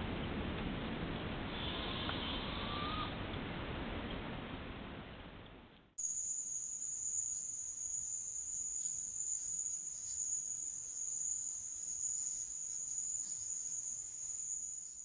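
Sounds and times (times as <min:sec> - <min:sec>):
crickets trilling: 0:06.0 - 0:15.0.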